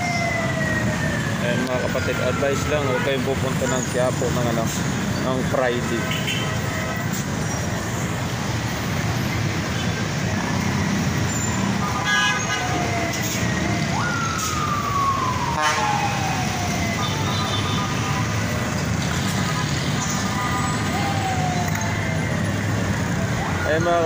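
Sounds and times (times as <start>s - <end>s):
siren: 0.0s - 4.6s, 5.6s - 7.1s, 10.4s - 24.0s
traffic engines running: 0.0s - 24.0s
car horns tooting: 11.4s - 12.7s, 15.6s - 16.0s.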